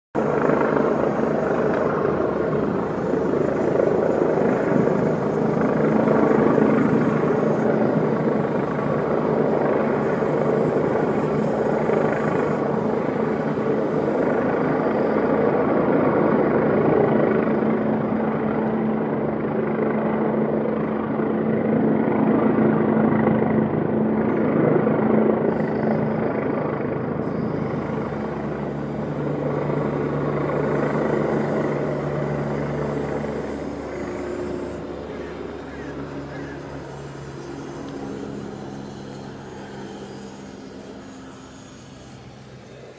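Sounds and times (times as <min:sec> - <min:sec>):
helicopter hovering: 0:00.2 - 0:42.9.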